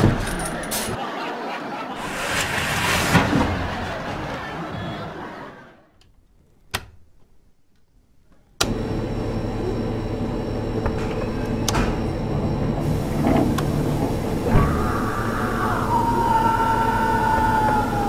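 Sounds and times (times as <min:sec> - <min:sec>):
machine running with mechanical hum: 0:08.6 - 0:18.0.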